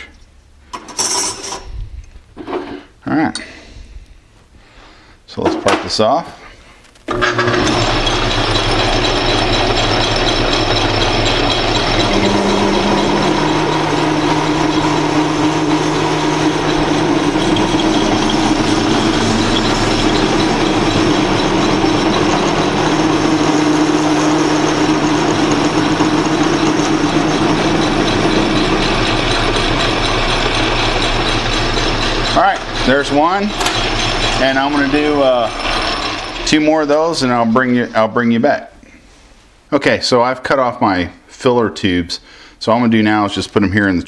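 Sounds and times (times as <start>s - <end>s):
parting tool cutting brass tube: 7.1s - 24.2s
metal lathe running: 7.1s - 38.0s.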